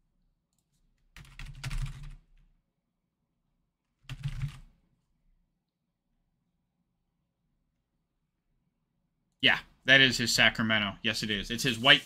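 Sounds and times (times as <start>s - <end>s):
typing on a computer keyboard: 1.0s - 2.5s, 4.0s - 4.7s.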